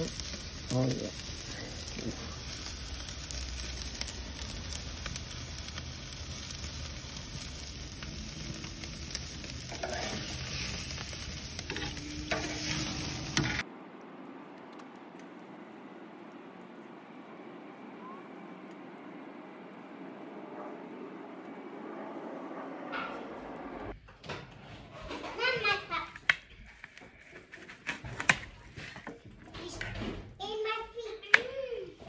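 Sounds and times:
steaks sizzling on a grill: 0:00.0 - 0:13.6.

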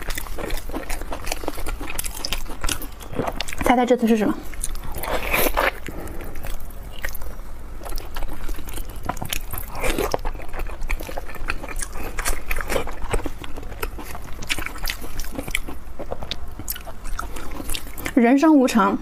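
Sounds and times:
wet chewing and mouth smacks: 0:00.0 - 0:03.7, 0:04.5 - 0:18.2.

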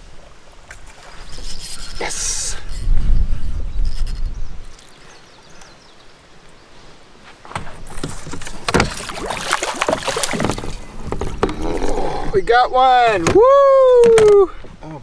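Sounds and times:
fish splashing at surface: 0:07.9 - 0:10.8.

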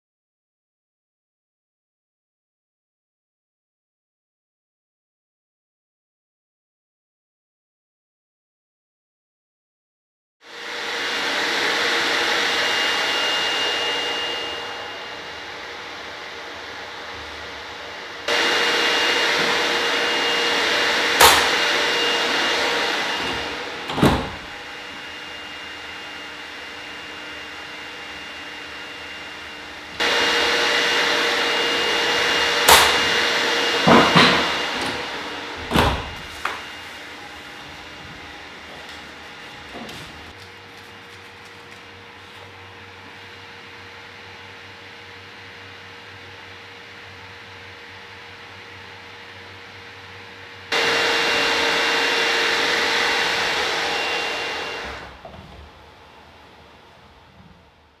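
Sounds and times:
sliding door closing: 0:18.3 - 0:25.1, 0:32.2 - 0:36.7, 0:37.4 - 0:40.4, 0:53.5 - 0:55.9
hinged door shutting with click: 0:23.3 - 0:24.5, 0:35.6 - 0:36.3.

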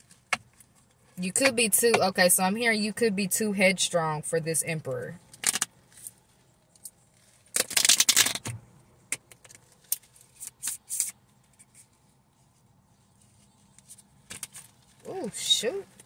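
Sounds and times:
cards shuffling: 0:09.3 - 0:12.0.

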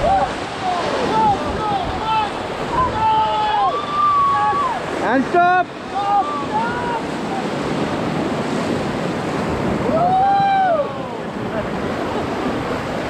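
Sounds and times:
rushing white water: 0:00.0 - 0:13.0
wind buffeting microphone: 0:05.7 - 0:13.0.

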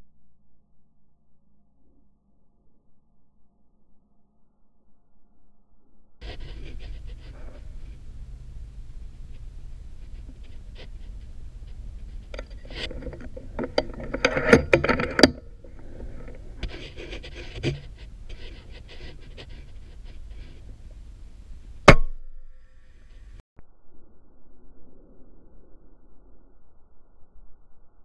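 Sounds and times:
rustling and clicking handling noise: 0:06.2 - 0:21.8.

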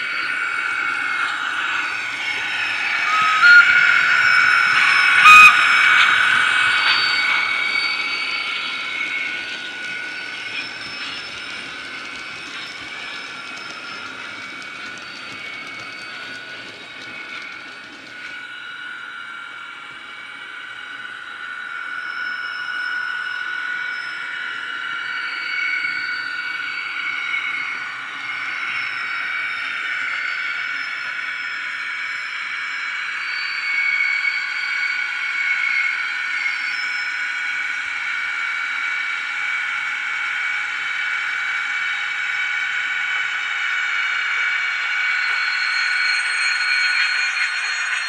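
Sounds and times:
electric locomotive whine: 0:00.0 - 0:48.0
train whistle blasts: 0:01.2 - 0:11.6.

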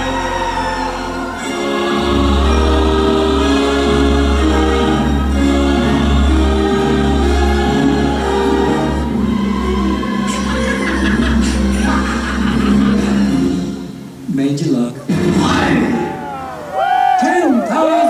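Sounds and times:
choir singing with orchestra: 0:00.0 - 0:14.1.

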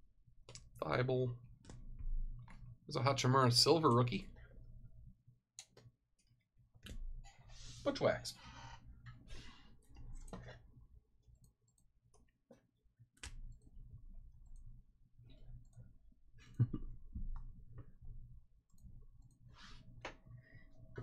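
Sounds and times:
faint clicks and taps: 0:00.4 - 0:00.8.

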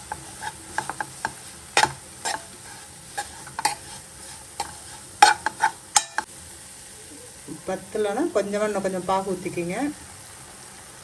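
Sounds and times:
spoon scraping a pan: 0:00.0 - 0:06.3
faint sizzle: 0:00.0 - 0:11.0.

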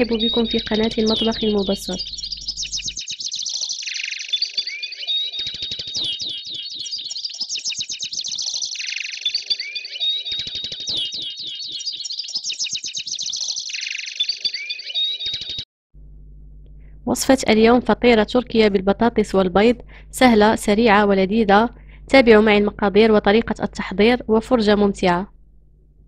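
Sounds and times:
fast ticking beat: 0:00.0 - 0:03.4
high bird-like chirping music: 0:00.0 - 0:15.6.

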